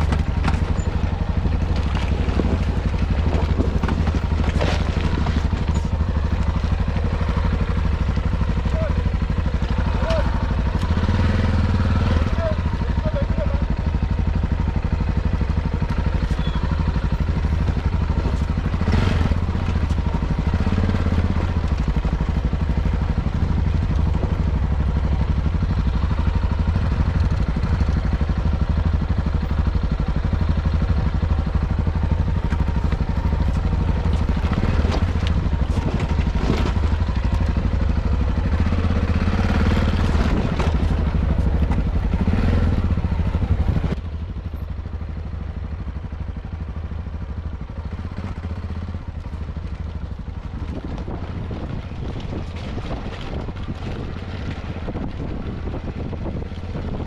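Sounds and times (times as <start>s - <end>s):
knocks and clatters: 0.0s - 7.0s
motorcycle engine running: 0.0s - 57.0s.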